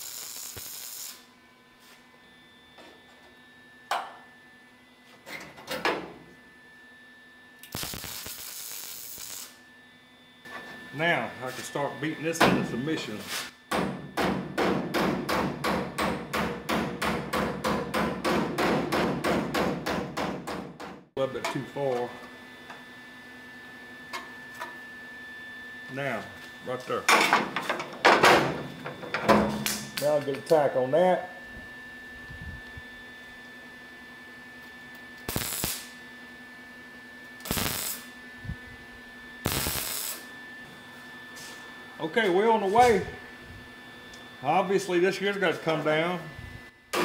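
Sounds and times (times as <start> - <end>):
welding arc bursts: 0.0 - 1.3, 7.6 - 9.6, 35.3 - 36.0, 37.4 - 38.1, 39.4 - 40.3.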